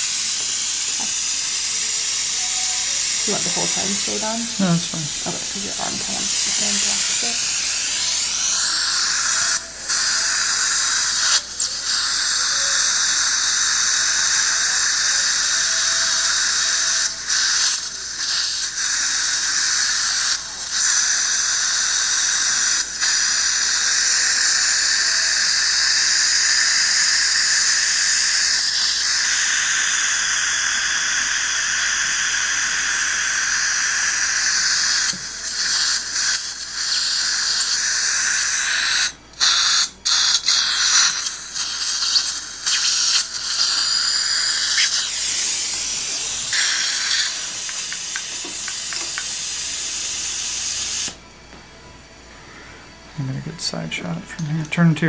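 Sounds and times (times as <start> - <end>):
suction aspirator hissing: 0.0 - 51.2.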